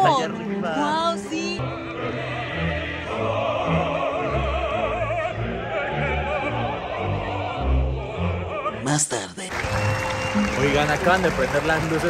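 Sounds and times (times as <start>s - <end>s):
opera singing with vibrato: 0.0s - 9.5s
orchestra playing low notes: 9.5s - 12.0s.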